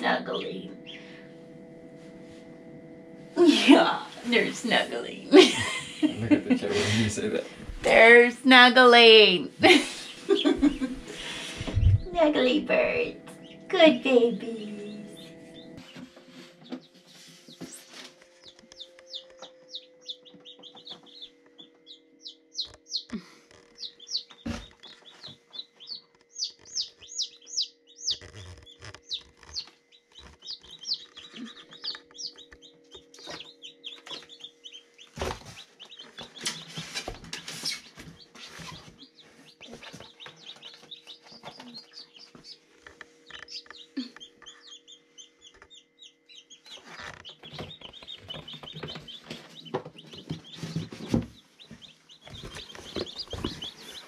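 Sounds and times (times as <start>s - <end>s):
chicks peeping: 0.0s - 3.2s, 5.5s - 54.0s
steady low hum: 0.0s - 54.0s
knocks and rustles of handling: 35.1s - 43.3s.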